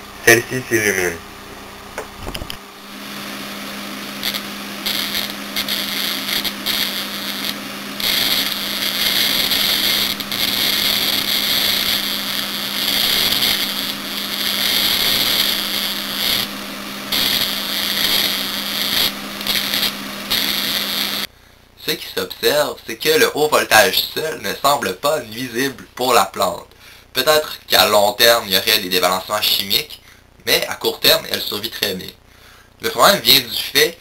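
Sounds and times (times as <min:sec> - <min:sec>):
steady low hum: 0:00.0 - 0:34.0
crackling plasma arc buzz: 0:00.8 - 0:26.6.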